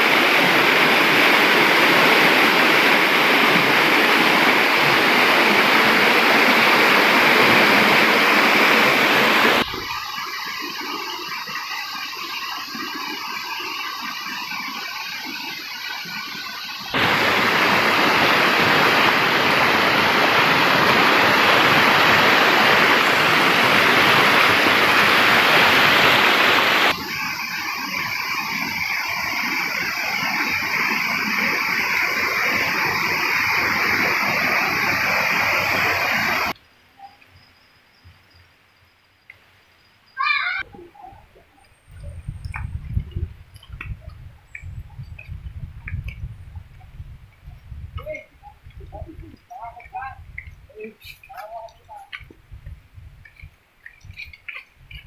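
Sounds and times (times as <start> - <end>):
rushing stream water: 0.0 - 36.6, 53.2 - 55.0.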